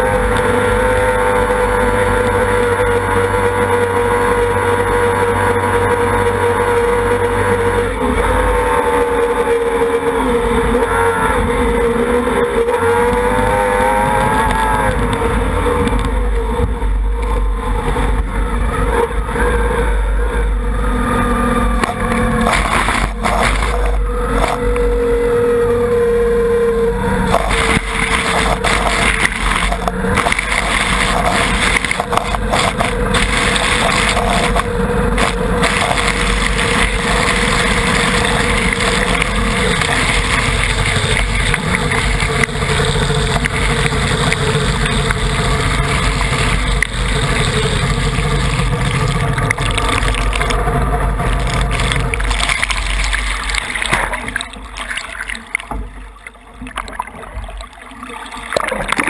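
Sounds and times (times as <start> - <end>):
outboard motor running: 0.0 - 59.0
water sloshing against hull: 15.0 - 25.1, 27.1 - 59.0
rushing water and spray: 21.4 - 25.0, 27.2 - 59.0.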